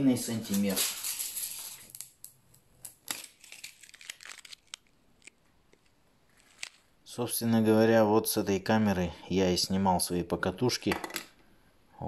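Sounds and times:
tape measure retracting: 0:06.3 - 0:06.9.

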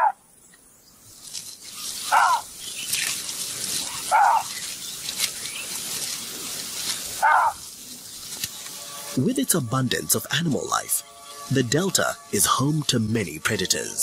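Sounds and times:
steady high hiss: 0:00.2 - 0:14.0
animal barking: 0:02.0 - 0:02.5, 0:03.7 - 0:04.6, 0:07.2 - 0:07.7.

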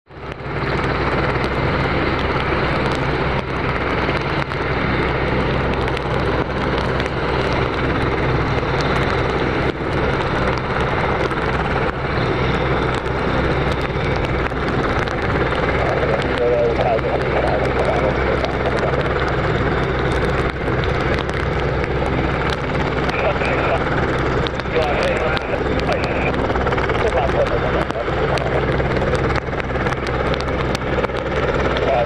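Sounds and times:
helicopter rotor and engines: 0:00.0 - 0:32.0.

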